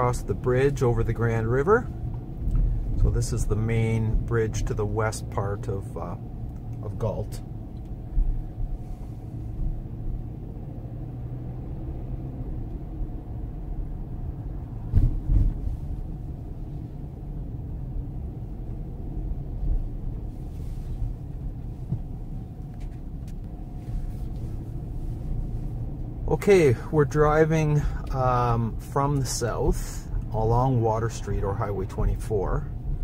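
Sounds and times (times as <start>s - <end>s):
car road and engine rumble: 0.0s - 33.0s
heavy thumps: 14.9s - 15.8s.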